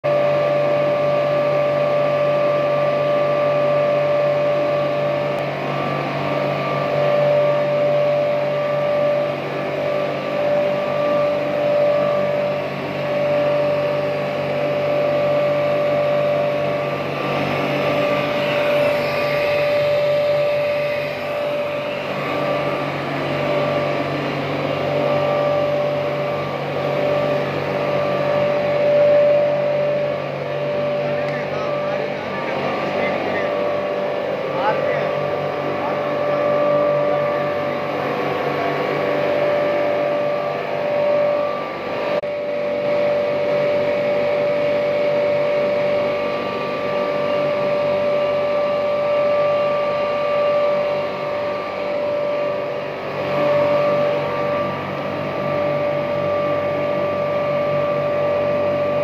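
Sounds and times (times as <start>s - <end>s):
machine drone with high whine: 0.0s - 59.0s.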